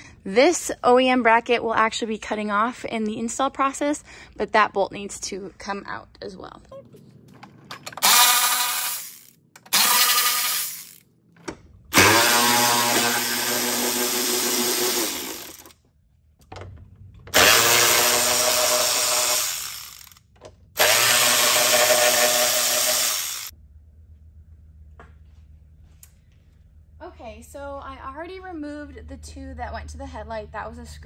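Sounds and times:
electric ratchet whirring: 7.8s - 11.0s, 11.9s - 15.8s, 17.3s - 20.2s, 20.8s - 23.5s.

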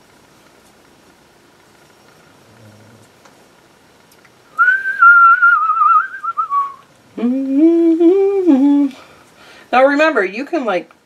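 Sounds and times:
person whistling a tune: 4.6s - 6.8s
person humming: 7.1s - 9.2s.

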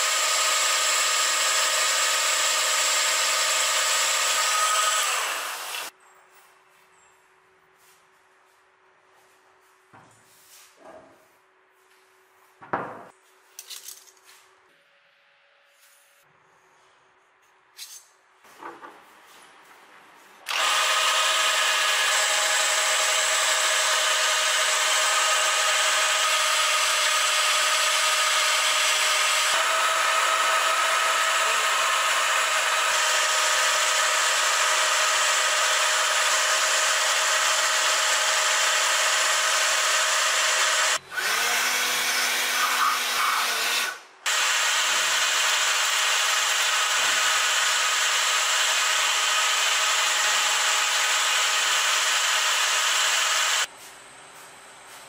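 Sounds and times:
milling machine cutting steel: 0.0s - 5.9s, 20.5s - 53.7s.

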